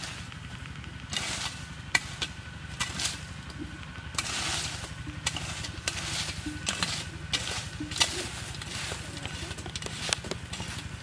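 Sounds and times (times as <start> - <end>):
dry leaves rustling: 0.0 - 11.0
low steady rumble: 0.0 - 11.0
footsteps crunching on dry leaves: 4.0 - 11.0.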